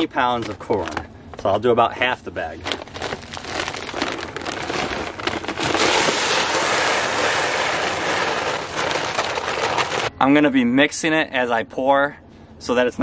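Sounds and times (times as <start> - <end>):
corn kernels pouring into plastic tub: 3.1 - 10.1.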